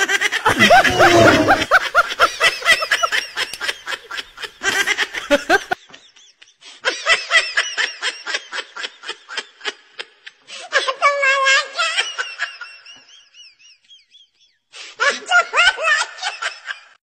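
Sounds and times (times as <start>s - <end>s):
person laughing: 0.5s - 1.7s.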